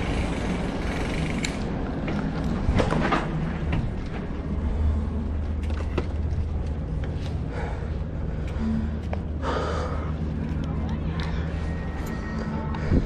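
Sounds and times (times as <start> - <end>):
bike clicks and rattles: 0.0 - 9.4
bike rolling over concrete: 0.0 - 9.6.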